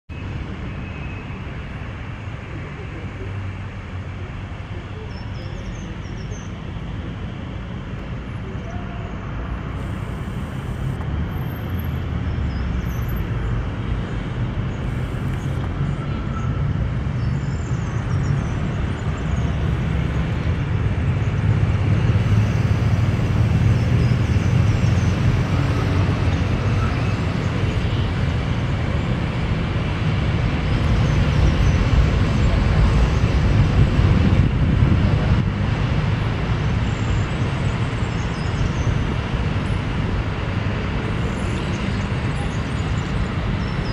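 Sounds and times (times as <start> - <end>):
street traffic: 0.1 - 43.9
tram rumbling past: 19.6 - 36.9.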